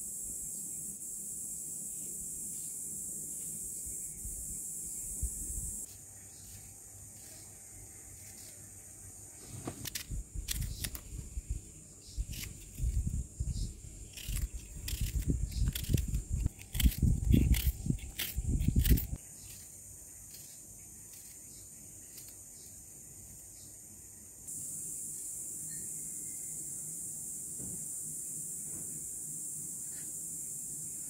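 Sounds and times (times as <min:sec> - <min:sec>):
steady high hiss: 0:00.0 - 0:10.2, 0:22.3 - 0:31.0.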